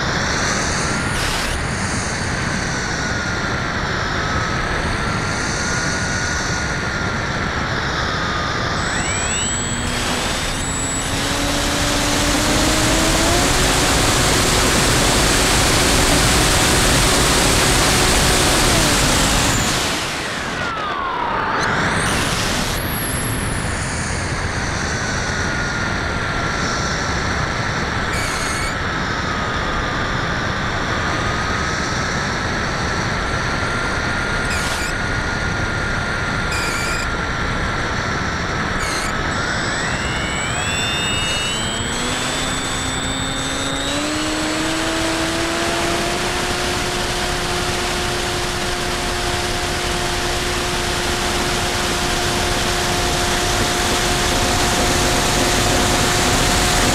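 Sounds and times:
electric motor and propeller whine: 0:00.0 - 0:56.9
wind rush over microphone: 0:50.6 - 0:56.9.

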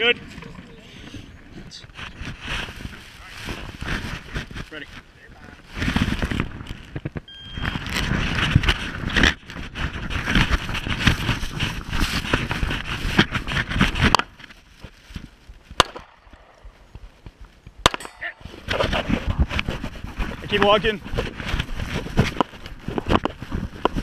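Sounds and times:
branches scraping against camera: 0:00.0 - 0:24.0
sharp cracks: 0:15.7 - 0:19.7.

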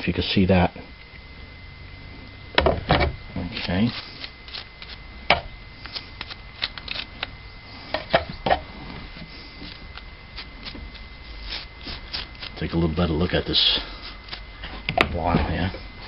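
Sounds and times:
toothbrush scrubbing metal parts: 0:03.5 - 0:05.0, 0:09.2 - 0:14.4.

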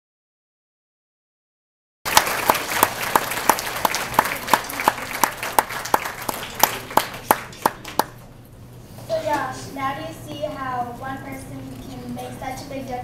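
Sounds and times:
audience applauding: 0:02.1 - 0:08.2
loud nearby clapping: 0:02.1 - 0:08.2.

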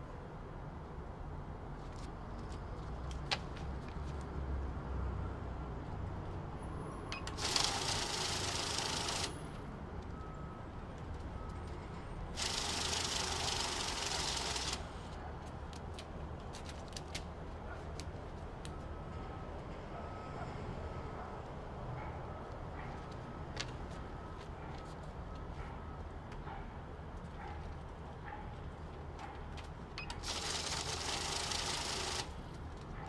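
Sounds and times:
banknote counter whirring: 0:07.2 - 0:09.5, 0:12.4 - 0:15.0, 0:30.0 - 0:32.4.

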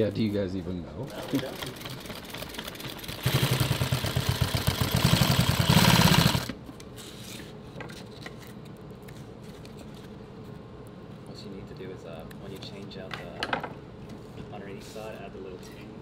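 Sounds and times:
sewing machine stitching clatter: 0:01.1 - 0:06.5.

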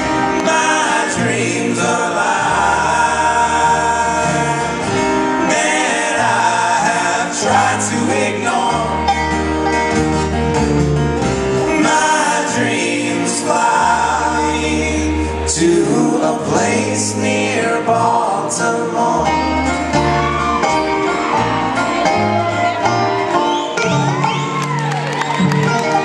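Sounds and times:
people singing: 0:00.0 - 0:09.5, 0:11.6 - 0:20.4
acoustic guitar: 0:00.0 - 0:26.0
banjo: 0:00.0 - 0:26.0
upright bass: 0:00.0 - 0:26.0.

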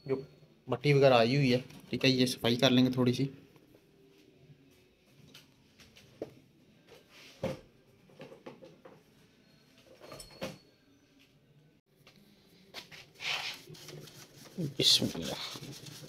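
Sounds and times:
scratchy scrubbing: 0:13.2 - 0:16.0.

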